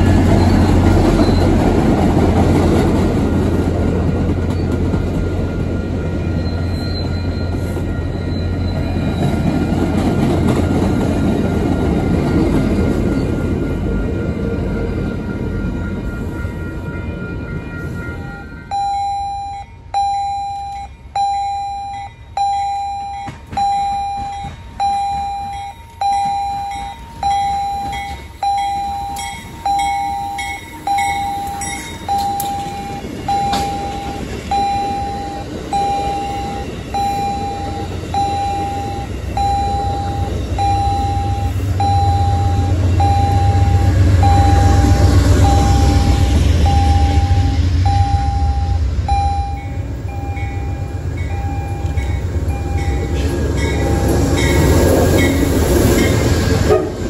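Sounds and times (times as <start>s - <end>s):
railroad crossing bell ringing: 0.0s - 57.0s
low rumble: 32.3s - 56.4s.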